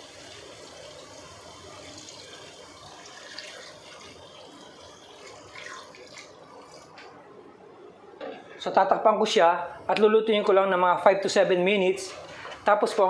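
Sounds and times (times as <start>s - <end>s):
water pouring into a pot: 0.0s - 7.0s.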